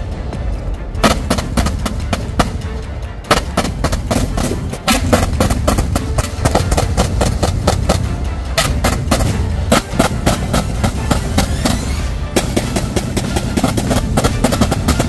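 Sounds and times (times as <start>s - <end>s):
anti-aircraft guns firing: 3.3s - 15.0s.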